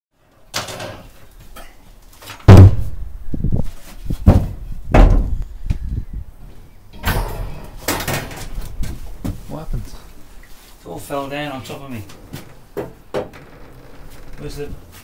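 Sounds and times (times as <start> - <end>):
knocks and bangs in wooden shed: 0.5 - 5.9, 7.0 - 10.0, 11.9 - 15.0
rustling scrape: 7.4 - 11.1.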